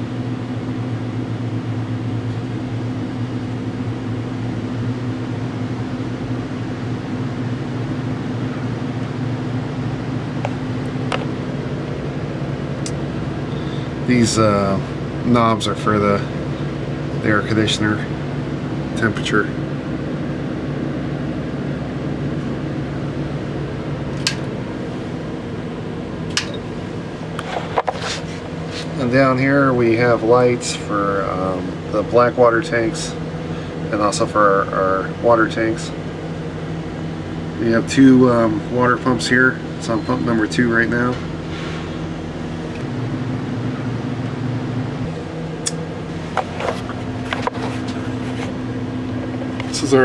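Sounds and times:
fans and air conditioning: 0:00.0 - 0:50.0
steady equipment hum: 0:00.0 - 0:50.0.

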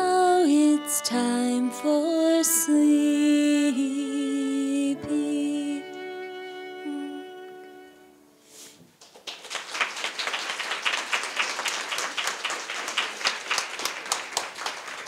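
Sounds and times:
person singing lullaby: 0:00.0 - 0:07.9
violin: 0:00.0 - 0:08.6
audience applause: 0:09.0 - 0:15.0.

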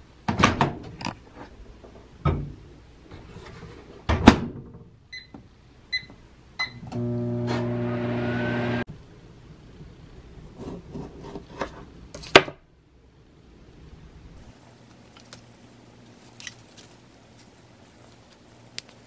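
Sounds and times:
microwave oven humming: 0:05.9 - 0:08.9.

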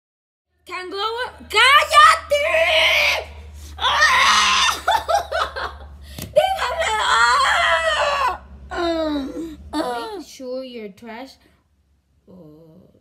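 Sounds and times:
boy screaming: 0:01.6 - 0:05.0, 0:06.4 - 0:10.2
boy laughing: 0:04.2 - 0:10.3.

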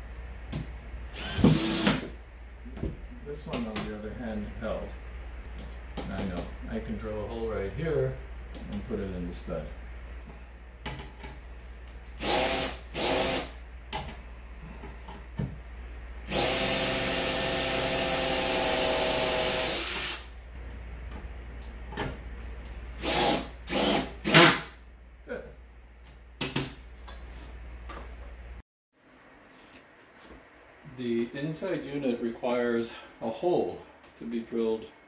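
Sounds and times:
cordless drill running: 0:01.1 - 0:02.0, 0:12.2 - 0:13.6, 0:16.3 - 0:20.3, 0:23.0 - 0:24.6.

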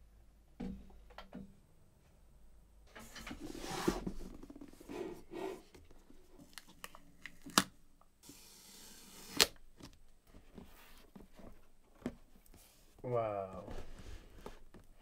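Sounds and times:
cardboard rustling and scraping: 0:03.2 - 0:06.5, 0:08.2 - 0:15.0
cardboard sliding rasp: 0:08.2 - 0:09.5.

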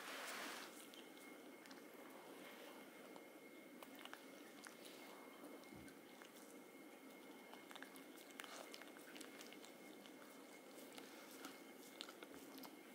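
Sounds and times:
dog chewing a sock: 0:05.8 - 0:12.9.

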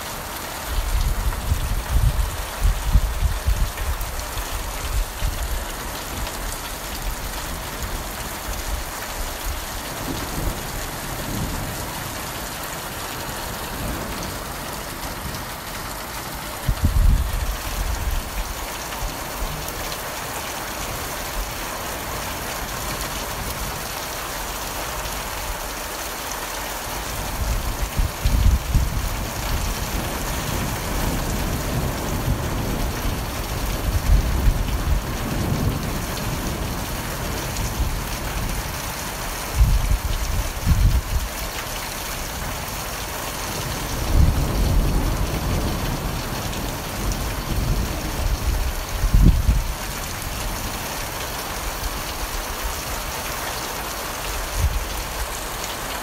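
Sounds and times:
heavy rain falling: 0:00.0 - 0:56.0
low thunder rumbles: 0:00.9 - 0:19.8, 0:27.3 - 0:38.7, 0:43.6 - 0:52.1.

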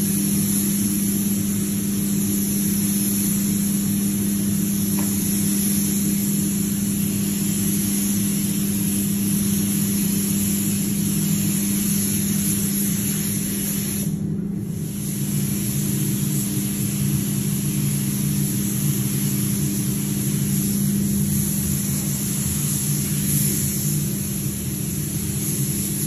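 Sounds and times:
spray gun hissing: 0:00.0 - 0:26.0
ventilation fans droning: 0:00.0 - 0:26.0.

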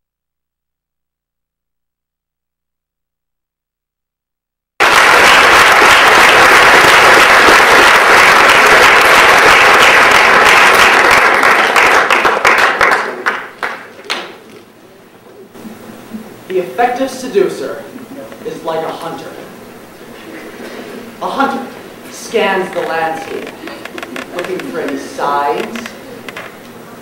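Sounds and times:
audience applause: 0:04.8 - 0:14.4, 0:22.7 - 0:26.6.

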